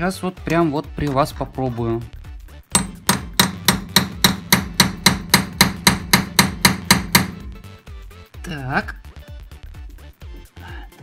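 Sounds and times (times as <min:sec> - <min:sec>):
hammer striking steel punch: 0:02.8 - 0:07.8.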